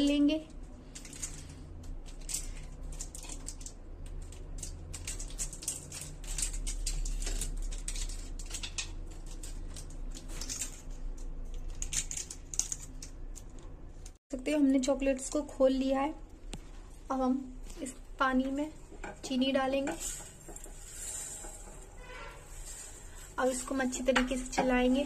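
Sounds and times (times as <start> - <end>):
plastic wrappers crinkling: 0.0 - 14.2.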